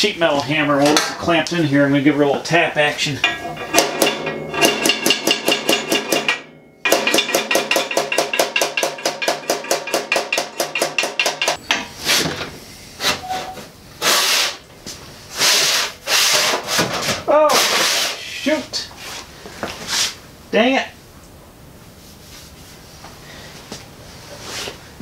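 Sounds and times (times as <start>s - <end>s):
hammer tapping sheet steel: 3.2s - 11.9s
sheet metal scraping: 3.2s - 14.6s, 15.3s - 18.3s.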